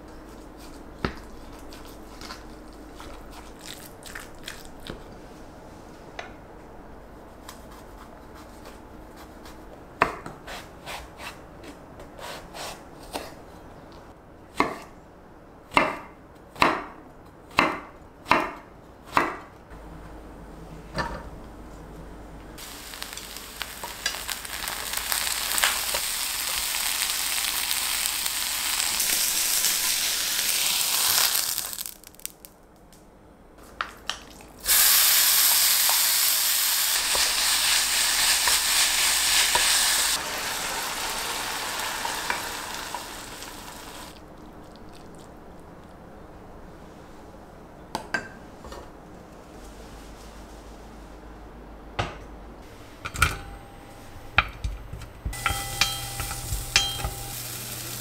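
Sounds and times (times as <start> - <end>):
knife chopping on wooden board: 15.7 - 19.5
vegetables sizzling in frying pan: 22.6 - 32.3, 34.6 - 44.2, 55.4 - 58.0.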